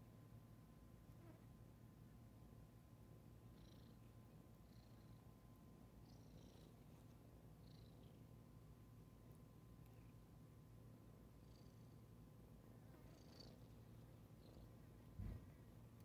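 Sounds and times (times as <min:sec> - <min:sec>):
cat purring: 0:03.3 - 0:08.4, 0:11.1 - 0:16.0
faint high chirps: 0:06.0 - 0:08.4, 0:13.0 - 0:14.9.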